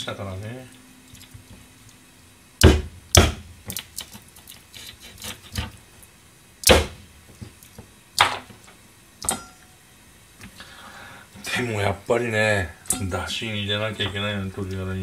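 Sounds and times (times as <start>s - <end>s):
knife chopping through bones: 2.6s - 3.8s, 6.6s - 7.0s.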